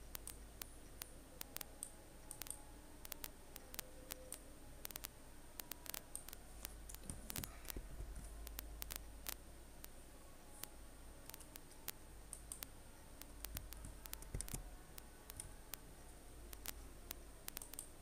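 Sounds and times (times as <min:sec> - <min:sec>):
computer mouse clicking: 0:00.0 - 0:10.0, 0:10.6 - 0:15.8, 0:16.5 - 0:18.0
steady low hum: 0:00.0 - 0:18.0.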